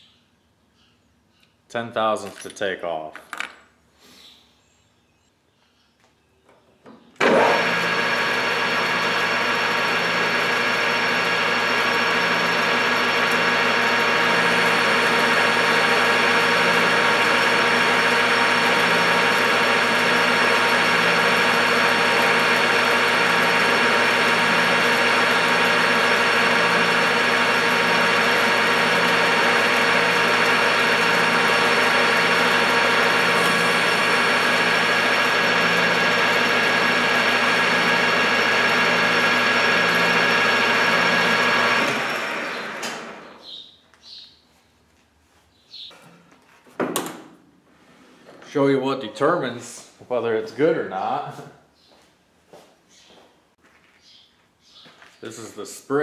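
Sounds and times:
metal lathe gears whining: 7.3 - 43.2.

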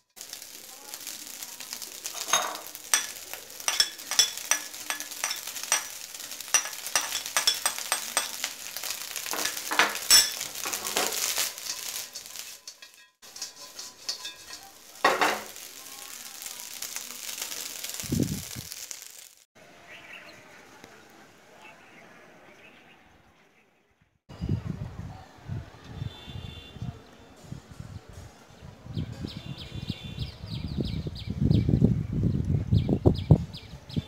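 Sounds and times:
rice sizzling in a wok: 0.0 - 19.5.

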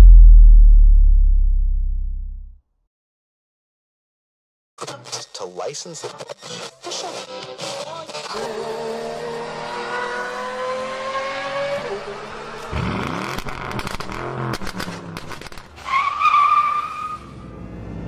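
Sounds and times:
car engine revving: 8.3 - 15.5.

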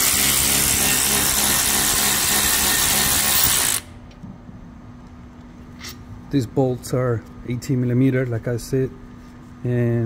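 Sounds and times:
power tool spinning out bolt: 0.0 - 3.9.

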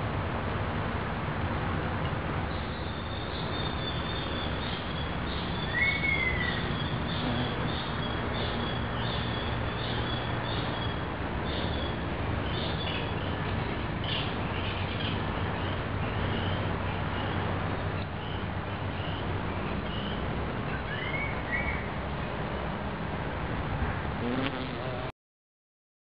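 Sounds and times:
birds chirping: 2.5 - 22.0
bumble bee buzzing: 6.6 - 8.2, 24.2 - 25.1.

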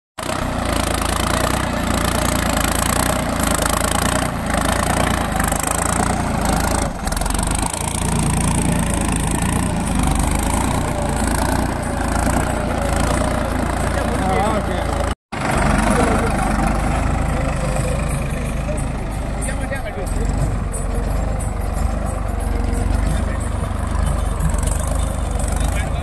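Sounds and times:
tractor diesel engine running: 0.2 - 26.0.

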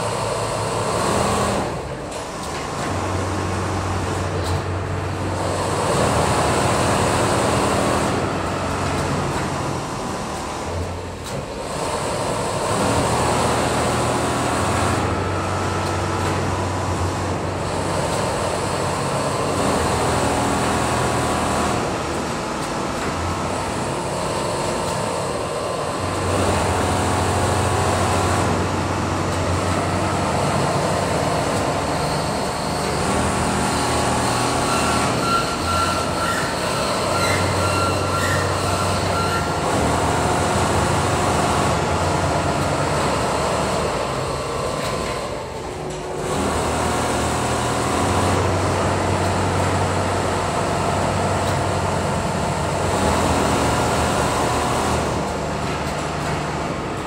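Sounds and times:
sewing machines clattering: 0.0 - 57.0.

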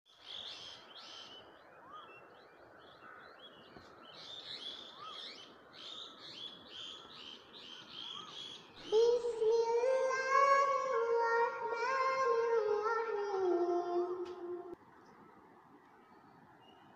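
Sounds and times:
birds chirping: 0.1 - 16.9.

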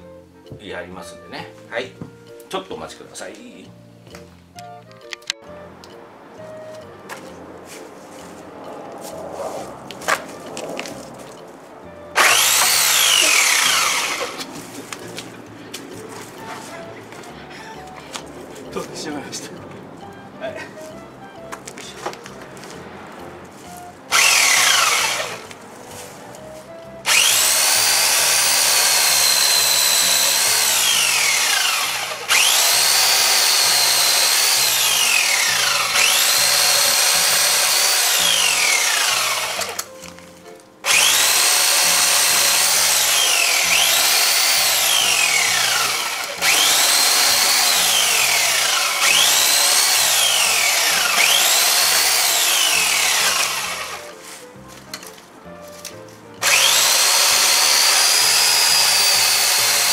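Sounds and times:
background music with beat: 3.2 - 12.8, 13.4 - 30.7
electric chainsaw whining: 12.2 - 15.3, 23.7 - 25.6, 27.0 - 40.0, 40.8 - 54.2, 56.4 - 59.9.

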